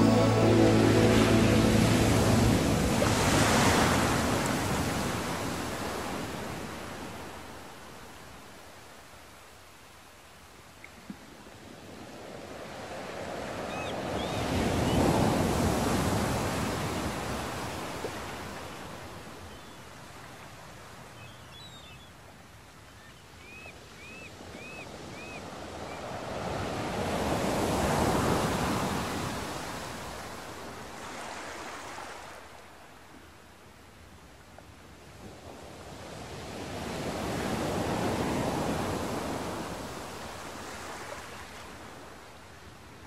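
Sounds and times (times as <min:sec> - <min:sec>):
sea waves washing: 0:00.0 - 0:07.6.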